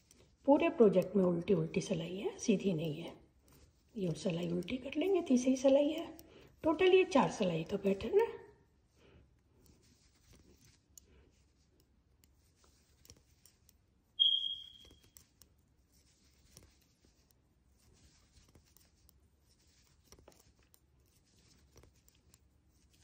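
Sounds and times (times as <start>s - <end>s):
knitting needles clicking: 0.0s - 8.5s, 9.4s - 23.0s
yarn rubbing: 0.0s - 23.0s
short high ping: 14.2s - 14.9s.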